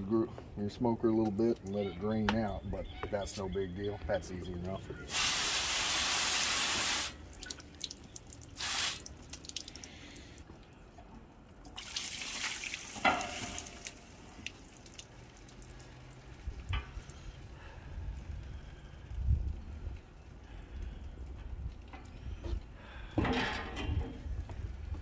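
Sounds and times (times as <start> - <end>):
hose nozzle spraying water: 5.1 - 9.6
water dripping and running: 5.1 - 10.5, 11.6 - 17.6.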